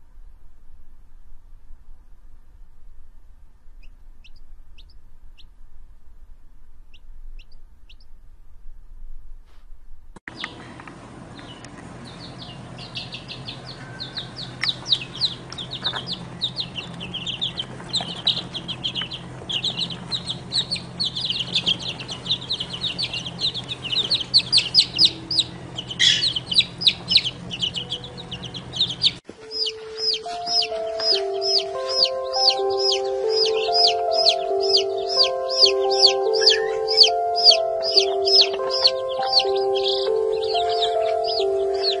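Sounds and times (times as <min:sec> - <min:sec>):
low steady hum: 0:00.0 - 0:42.0
chicks peeping: 0:03.8 - 0:05.5, 0:06.9 - 0:08.1, 0:10.3 - 0:42.0
music: 0:29.4 - 0:42.0.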